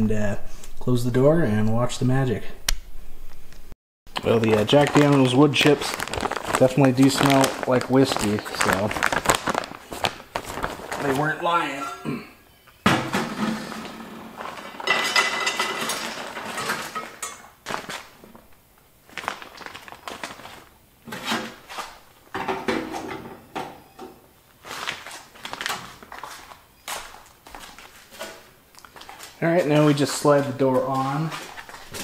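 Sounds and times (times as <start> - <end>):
wood chips rattling into metal pan: 4.3 - 8.9, 13.1 - 17.4.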